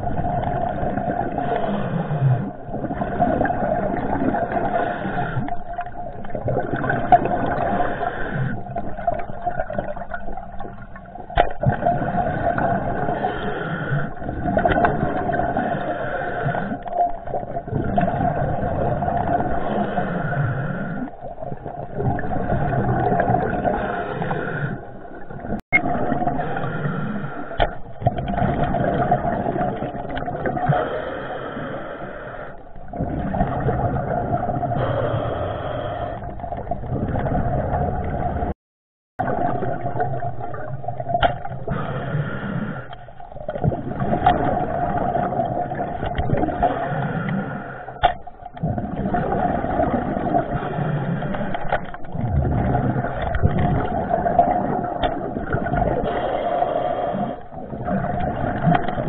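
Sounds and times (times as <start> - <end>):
muffled underwater water rushing: 0.0 - 38.6, 39.2 - 59.0.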